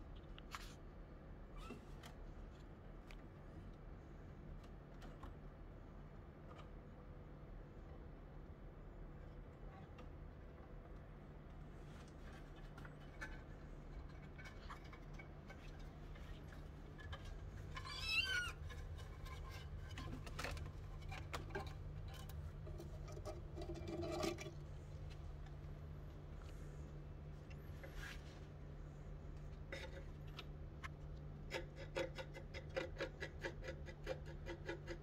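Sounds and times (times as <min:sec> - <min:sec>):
light taps and scratches: 0:09.3 - 0:28.7
steady low hum: 0:18.4 - 0:31.6.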